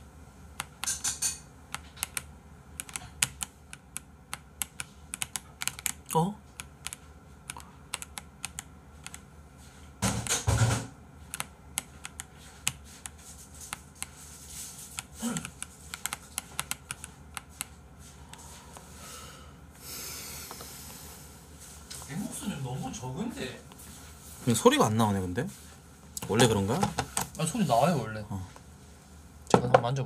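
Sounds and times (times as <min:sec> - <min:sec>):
keyboard keys clicking: 0:01.7 - 0:09.2.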